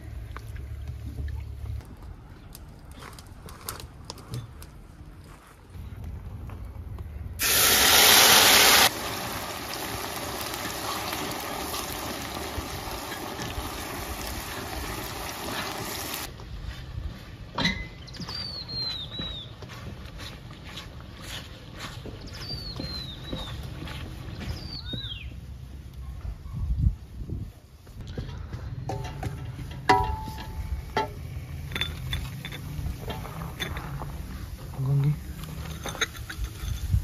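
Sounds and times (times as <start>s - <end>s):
loud hiss of batter in hot fat: 7.4s - 16.3s
sizzling and bubbling: 7.4s - 16.3s, 28.9s - 37.0s
small bird chirping: 18.0s - 19.6s, 22.2s - 23.6s, 24.3s - 25.4s.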